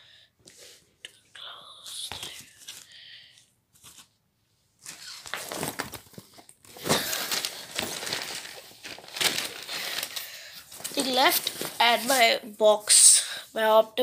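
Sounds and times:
plastic wrapping crinkling: 4.8s - 12.4s.

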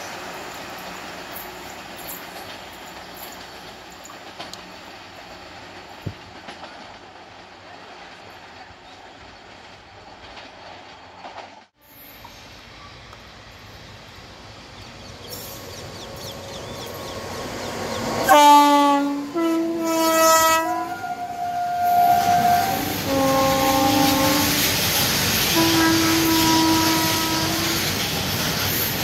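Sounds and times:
train rumble and wheel noise: 0.0s - 29.0s
train horn blasts: 18.2s - 24.8s, 25.4s - 27.9s.

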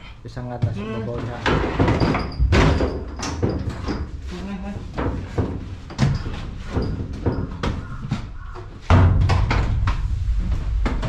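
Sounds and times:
metal knocks and clunks: 0.6s - 11.0s
loud low rumble: 9.2s - 11.0s.

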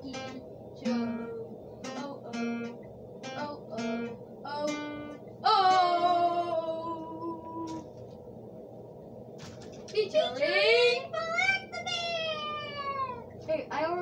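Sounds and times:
acoustic guitar music: 0.0s - 7.8s.

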